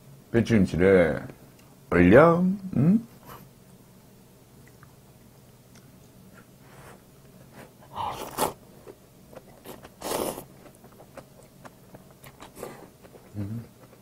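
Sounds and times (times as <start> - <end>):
noodles slurped: 8.0 - 8.6, 9.5 - 10.8.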